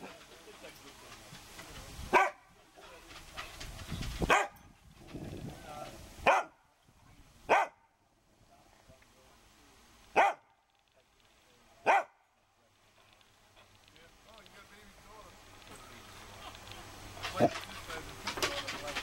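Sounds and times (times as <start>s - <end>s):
dog barking: 2.1s - 2.5s, 4.3s - 4.6s, 6.2s - 6.6s, 7.5s - 7.9s, 10.1s - 10.5s, 11.8s - 12.2s.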